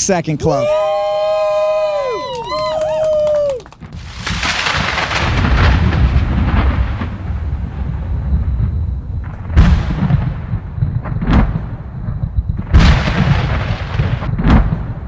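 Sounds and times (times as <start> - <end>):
loud booms: 3.7 - 15.0.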